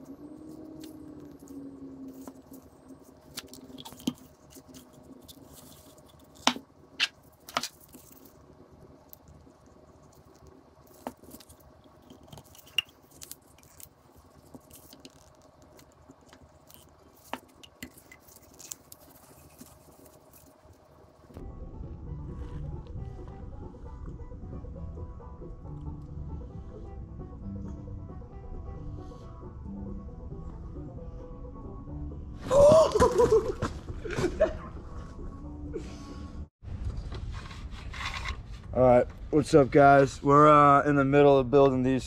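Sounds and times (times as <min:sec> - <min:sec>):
faint steady hum: 0:00.0 - 0:32.3
small objects clicking and knocking: 0:00.8 - 0:21.3.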